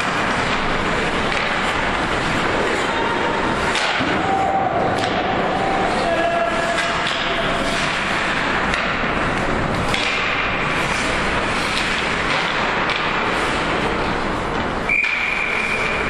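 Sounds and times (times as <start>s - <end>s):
ice hockey game noise: 0.0s - 16.0s
referee's whistle: 14.9s - 16.0s.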